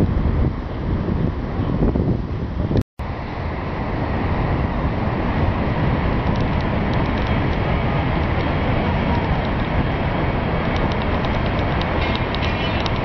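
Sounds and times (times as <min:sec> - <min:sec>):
wind on microphone: 0:00.0 - 0:13.0
distant road traffic: 0:03.0 - 0:13.0.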